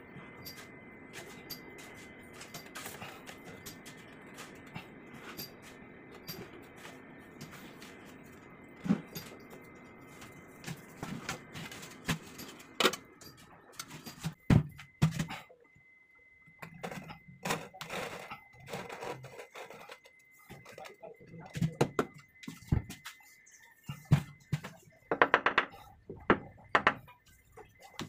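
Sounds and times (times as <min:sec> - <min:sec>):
knocks and taps on ceramic tile: 0:25.1 - 0:27.0.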